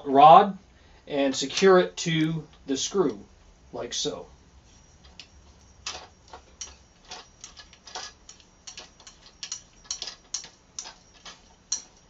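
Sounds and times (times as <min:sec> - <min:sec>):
metal rod twisting clicks: 0:05.1 - 0:12.0.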